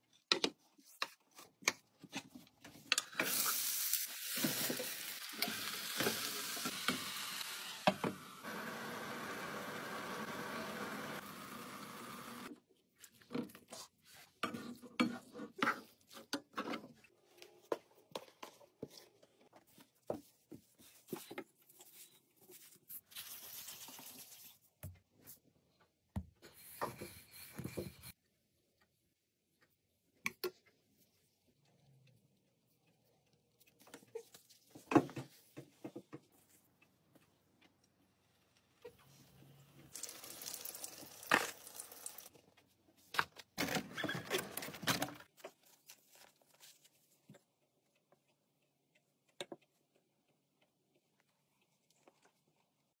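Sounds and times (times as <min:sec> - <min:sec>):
meat sizzling in a pan: 0:03.2 - 0:07.8, 0:39.9 - 0:42.3.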